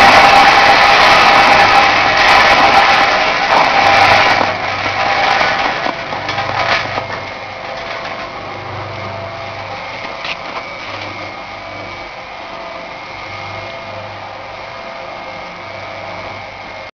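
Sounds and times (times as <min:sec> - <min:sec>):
roasting machine whirring: 0:00.0 - 0:16.9
machine clattering: 0:02.4 - 0:11.3.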